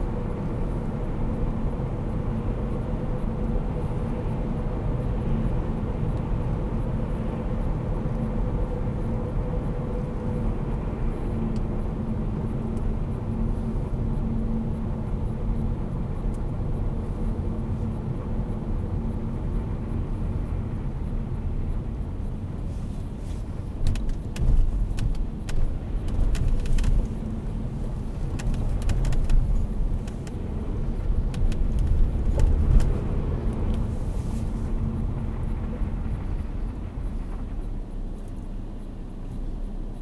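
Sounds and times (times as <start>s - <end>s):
car engine hum: 0.0s - 40.0s
tyre rumble on wet road: 22.8s - 34.8s.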